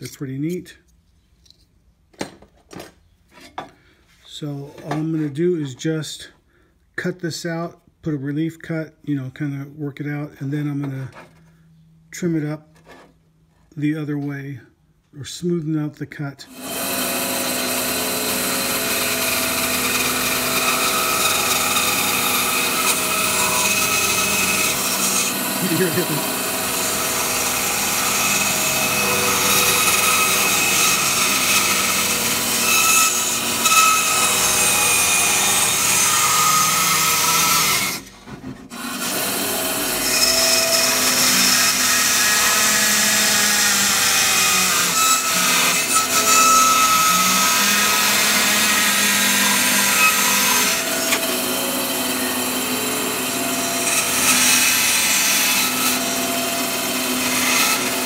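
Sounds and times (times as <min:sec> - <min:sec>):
bandsaw cutting brass: 0:16.5 - 0:38.1, 0:38.8 - 0:58.0.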